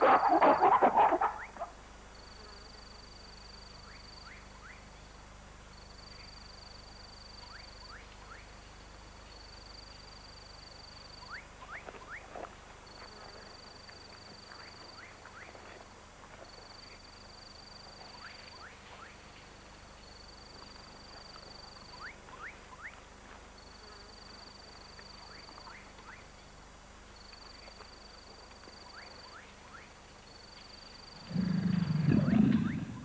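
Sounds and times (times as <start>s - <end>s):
gorilla roaring: 31.2s - 33.0s.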